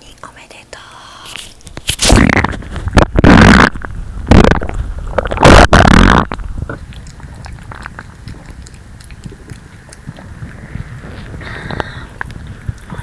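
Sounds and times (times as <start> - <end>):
stomach rumbling and gurgling: 1.2 - 13.0.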